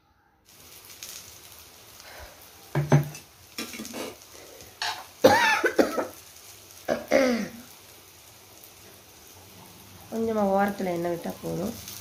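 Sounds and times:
person coughing: 0:05.2 - 0:06.1, 0:06.9 - 0:07.6
person clearing throat: 0:05.3 - 0:06.1.

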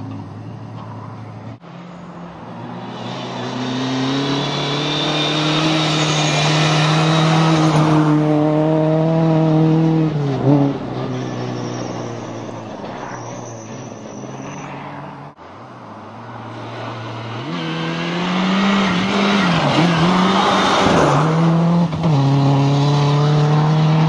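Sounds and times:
rally car engine revving: 0:02.9 - 0:11.8, 0:16.6 - 0:24.0.

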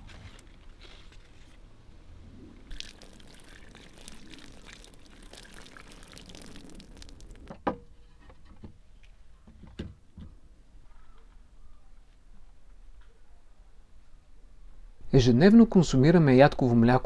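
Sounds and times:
leaves rustling and crackling: 0:02.4 - 0:07.5.

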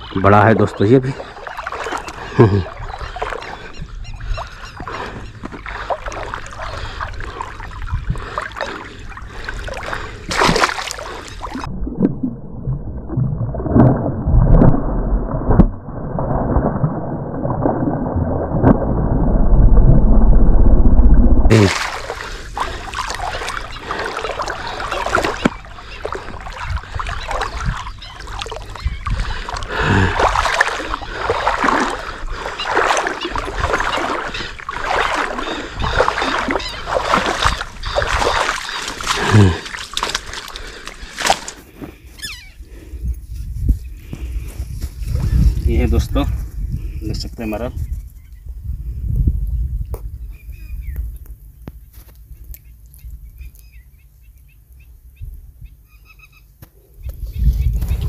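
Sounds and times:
fish thrashing and splashing in water: 0:01.2 - 0:03.6, 0:04.3 - 0:19.2, 0:21.5 - 0:41.7
fish leaping with a splash: 0:10.3 - 0:11.7, 0:21.5 - 0:25.6, 0:32.6 - 0:41.5
heavy low rumble: 0:11.7 - 0:21.6.

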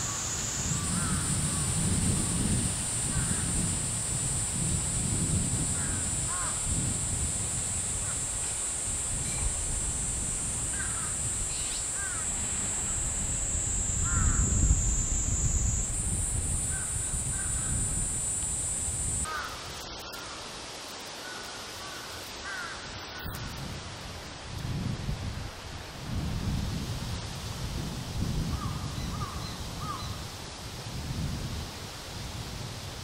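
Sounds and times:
low wind rumble: 0:00.0 - 0:19.3
high-pitched buzz: 0:00.0 - 0:20.0
magpies calling: 0:14.0 - 0:14.5.

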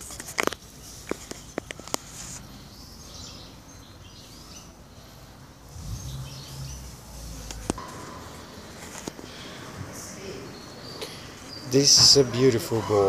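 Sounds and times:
faint bird chirps: 0:02.4 - 0:08.6
low hum: 0:05.7 - 0:08.6.

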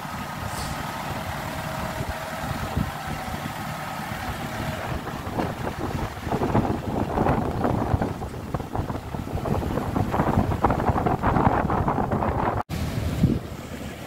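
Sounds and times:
diesel engine running at low revs: 0:00.0 - 0:14.0
wind on microphone: 0:04.2 - 0:13.6.

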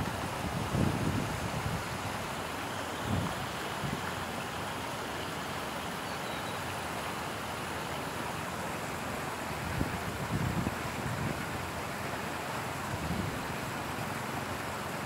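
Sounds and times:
water rushing over a weir: 0:00.0 - 0:15.0.

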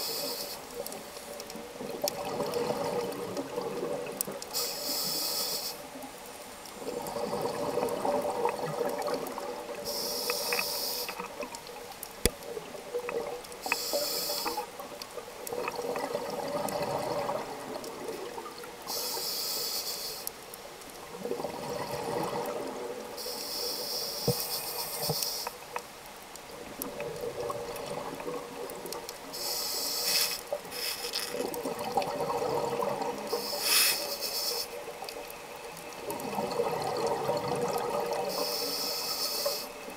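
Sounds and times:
hissing regulator inhales: 0:00.0 - 0:00.7, 0:04.5 - 0:05.9, 0:09.8 - 0:11.2, 0:13.7 - 0:14.7, 0:18.9 - 0:20.3, 0:23.2 - 0:25.6, 0:29.3 - 0:31.3, 0:33.3 - 0:34.8, 0:38.3 - 0:39.8
bubbling exhaled air: 0:01.8 - 0:04.3, 0:06.8 - 0:10.1, 0:15.5 - 0:18.5, 0:21.1 - 0:23.0, 0:26.6 - 0:34.1, 0:35.9 - 0:39.8.

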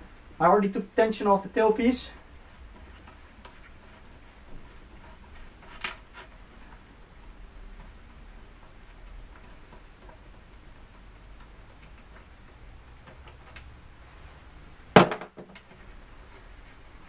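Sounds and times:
sharp knock: 0:15.0 - 0:15.5.

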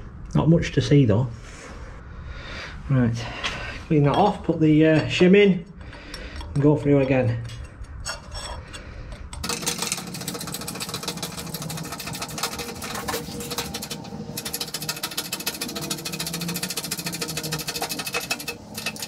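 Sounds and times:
broach pressing with rapid ticking: 0:09.4 - 0:19.0.

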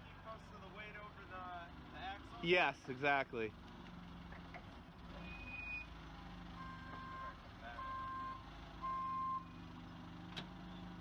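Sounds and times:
forklift backup alarm beeping: 0:06.6 - 0:09.5.

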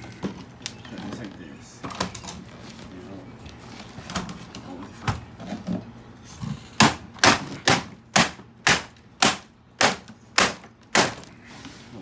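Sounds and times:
hammer striking plastic: 0:06.8 - 0:11.3.

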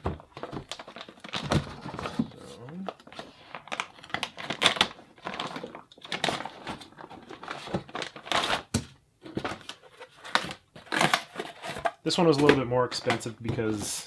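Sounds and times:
cardboard boxes rustling and knocking: 0:00.0 - 0:02.6, 0:06.3 - 0:14.0
plastic wrapping crinkling: 0:00.3 - 0:08.8.

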